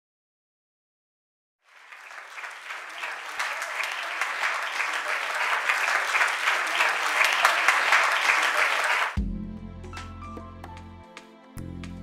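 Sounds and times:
crowd applause: 1.7 - 9.2.

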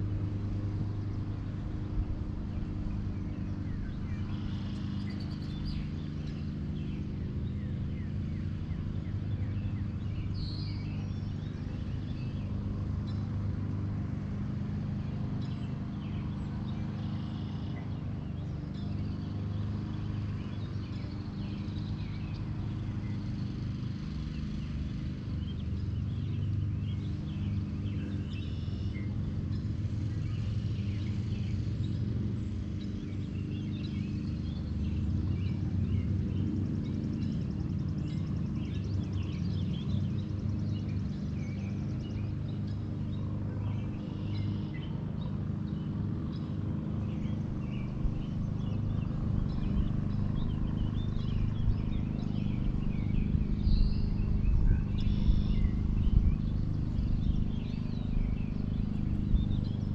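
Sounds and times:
low engine hum: 0.0 - 59.9
bird chirps: 2.5 - 13.3, 25.4 - 59.9.

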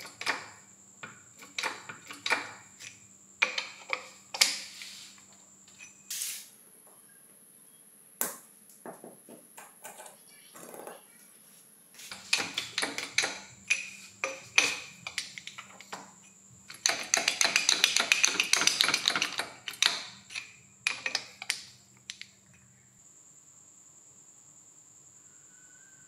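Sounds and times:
small metallic clicks and taps: 12.1 - 22.6.

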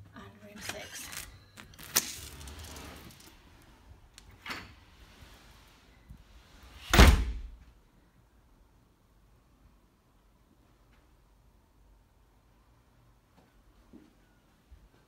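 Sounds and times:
deep door thud: 6.9 - 7.6.

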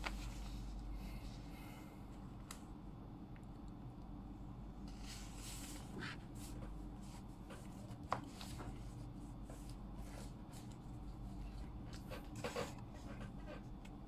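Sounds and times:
paper sheets rustling: 0.0 - 0.8, 4.9 - 8.9
faint steady hum: 0.0 - 14.0.

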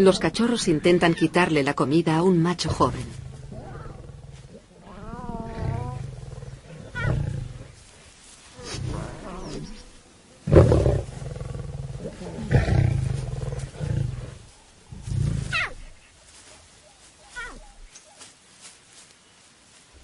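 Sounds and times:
lions growling and snarling: 2.6 - 8.0, 8.6 - 16.0.

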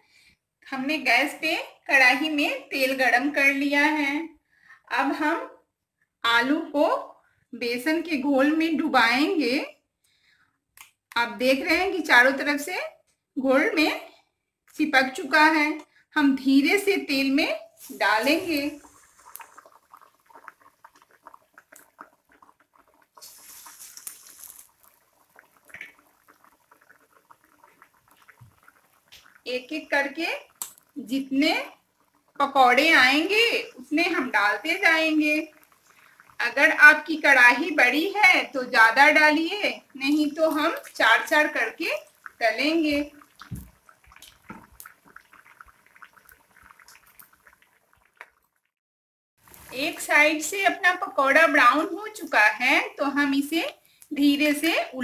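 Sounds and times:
hot oil crackling: 16.7 - 48.7, 49.4 - 55.0
batter dropped into sizzling oil: 23.2 - 24.9.

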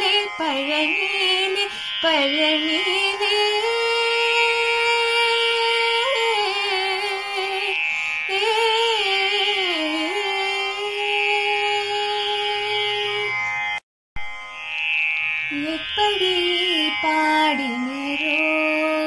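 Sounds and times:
girl singing unaccompanied: 0.0 - 7.7, 15.5 - 19.0.

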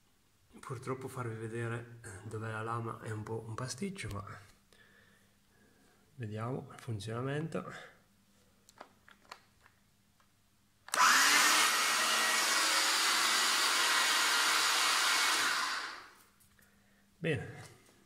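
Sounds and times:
electric pole pruner motor running: 10.9 - 16.2.

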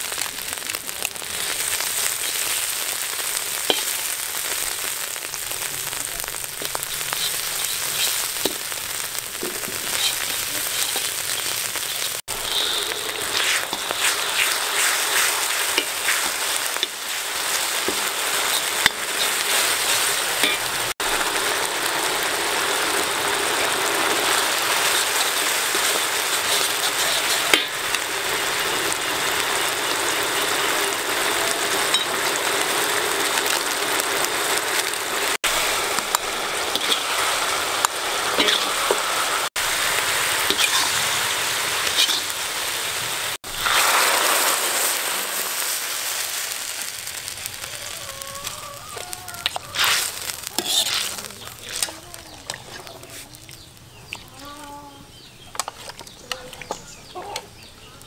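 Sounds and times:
chillies sizzling in hot oil: 0.0 - 58.0
metal spoon scraping a wok: 6.7 - 20.7, 24.8 - 28.0, 36.0 - 37.2, 38.3 - 39.0, 40.4 - 41.0, 41.8 - 42.3, 49.0 - 53.3.

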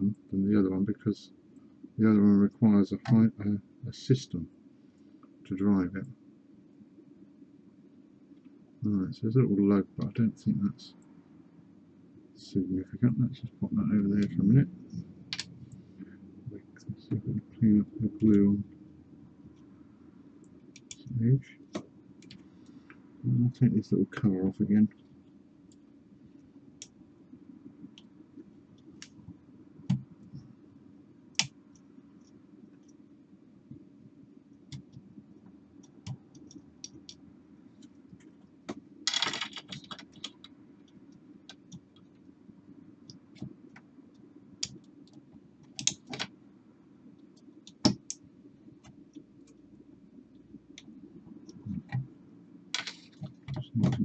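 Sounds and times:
low steady hum: 0.0 - 54.0.

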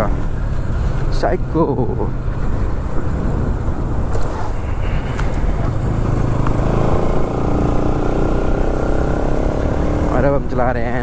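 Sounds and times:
wind rumble on microphone: 0.0 - 10.2
motorcycle engine running: 2.1 - 11.0.

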